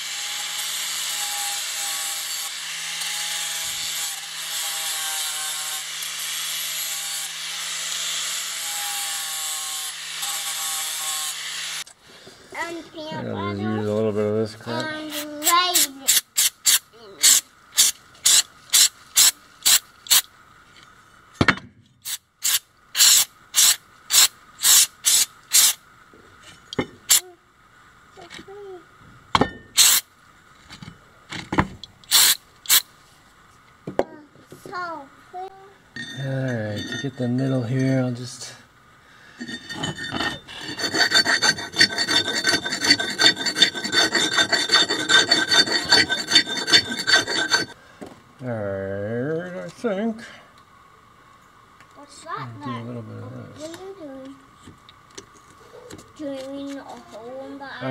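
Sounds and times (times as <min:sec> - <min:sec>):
aerosol spray can hissing: 0:15.8 - 0:20.2, 0:22.1 - 0:25.8, 0:32.1 - 0:32.8
file scraping metal: 0:39.4 - 0:47.8.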